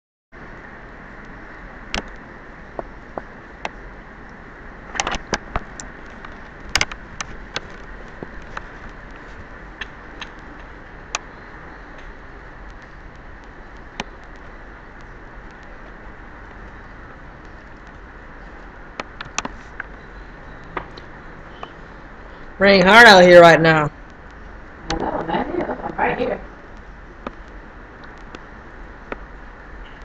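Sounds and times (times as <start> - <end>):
sharp taps and clicks: 1.9 - 3.8, 5.0 - 9.2, 9.8 - 11.3, 18.9 - 20.0, 26.7 - 28.5
heavy rain pouring: 24.7 - 26.6.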